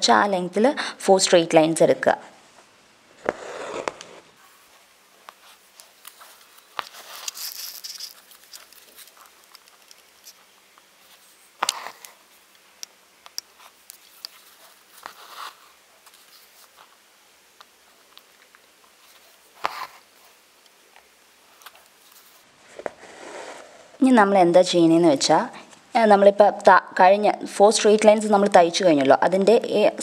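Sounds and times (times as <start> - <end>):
thread rasping through fabric: 3.2 - 20.5.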